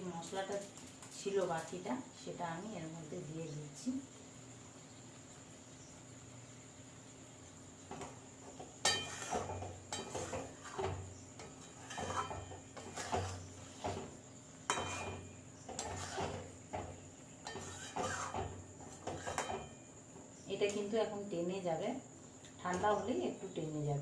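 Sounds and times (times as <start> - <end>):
metal spoon scraping a pan: 7.9 - 19.9.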